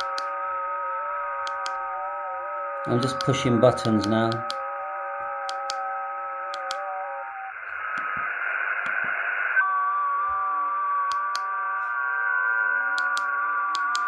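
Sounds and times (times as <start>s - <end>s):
digital signal tones from radio: 0.0s - 14.0s
radio band hiss: 7.5s - 9.6s.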